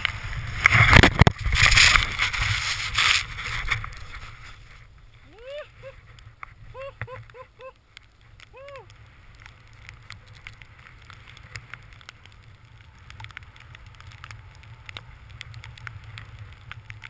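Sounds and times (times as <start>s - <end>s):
snowboard sliding through snow: 0.0s - 7.5s, 8.2s - 17.0s.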